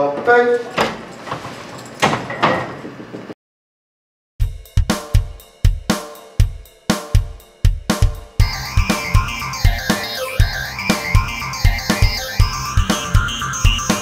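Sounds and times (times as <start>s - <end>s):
drum kit beat: 4.4s - 14.0s
music instruments: 4.4s - 14.0s.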